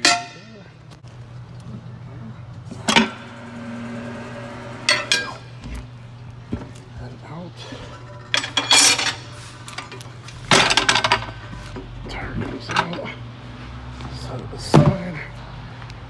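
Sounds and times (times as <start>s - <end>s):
tyre iron clinking on metal: 0.0s - 0.6s.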